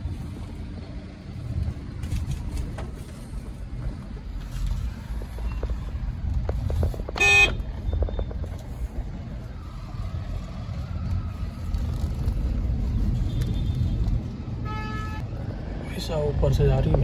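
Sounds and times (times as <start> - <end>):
engine and road rumble: 0.0 - 17.0
vehicle horn honk: 7.2 - 7.6.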